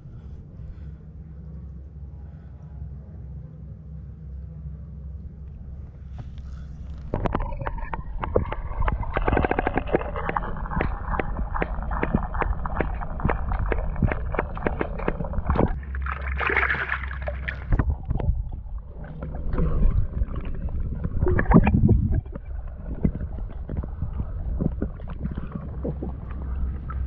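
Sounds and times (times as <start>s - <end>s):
low rumble: 0.0s - 27.0s
water sloshing underwater: 4.9s - 27.0s
water splashing: 6.2s - 27.0s.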